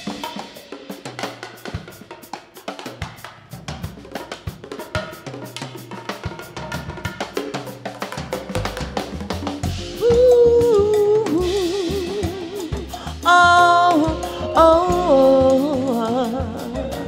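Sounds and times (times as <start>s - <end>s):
drum kit and bass groove: 0.0s - 17.0s
wavering lead melody: 9.6s - 17.0s.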